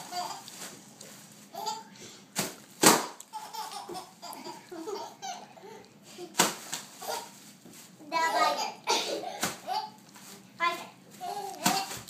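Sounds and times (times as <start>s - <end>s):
baby laughing: 0.0s - 0.6s, 1.5s - 1.9s, 3.3s - 5.8s, 11.2s - 12.0s.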